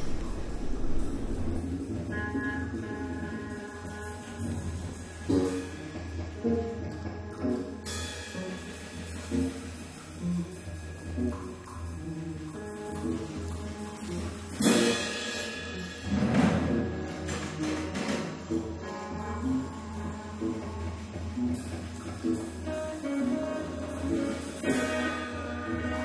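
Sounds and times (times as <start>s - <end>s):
loud noisy swells: 0.0s - 1.9s
low steady drone: 0.0s - 16.1s.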